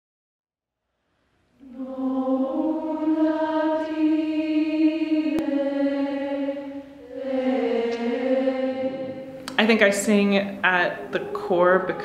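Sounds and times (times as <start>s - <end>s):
choir singing a held chord: 1.6s - 9.5s, 10.6s - 12.0s.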